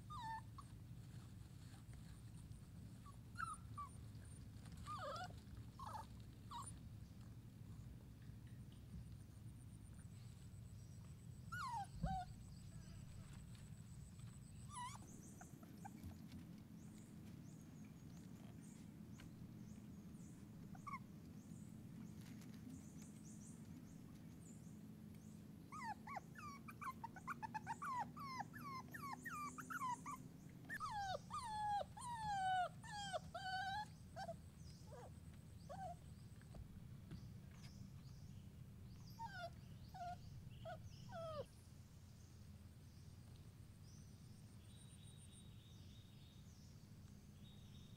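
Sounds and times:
puppy whimpering: 0:00.0 - 0:00.7, 0:03.0 - 0:04.0, 0:04.7 - 0:06.8, 0:11.1 - 0:12.4, 0:14.6 - 0:16.4, 0:20.7 - 0:21.1, 0:25.7 - 0:35.1, 0:35.7 - 0:36.0, 0:39.0 - 0:41.5.

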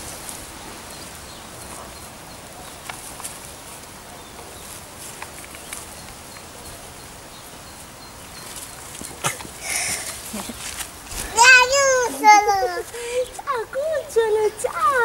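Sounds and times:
faint steady hiss: 0:00.0 - 0:15.0
bird chirps: 0:04.1 - 0:10.6
leaves snapping and rustling: 0:04.6 - 0:06.2, 0:08.8 - 0:12.0.

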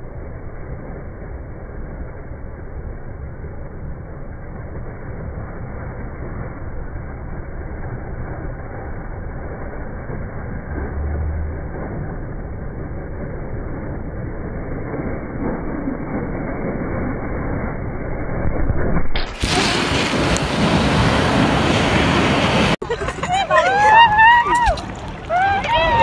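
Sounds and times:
ocean waves breaking: 0:19.1 - 0:26.0.

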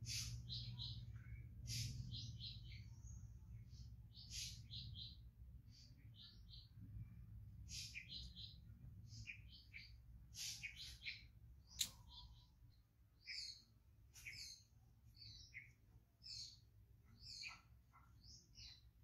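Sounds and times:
small birds chirping: 0:00.0 - 0:19.0
sharp click: 0:11.7 - 0:12.0.

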